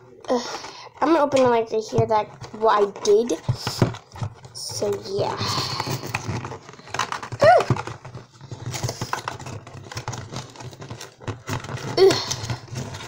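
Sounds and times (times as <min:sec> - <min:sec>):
cardboard box tearing: 0:03.0 - 0:13.0.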